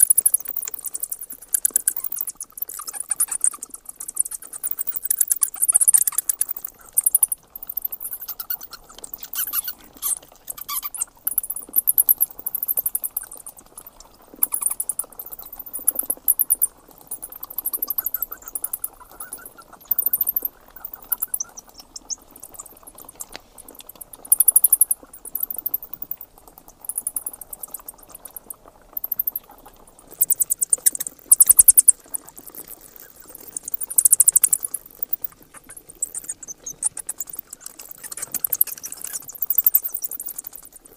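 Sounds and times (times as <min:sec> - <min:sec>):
bats chittering: 0:00.0 - 0:40.9.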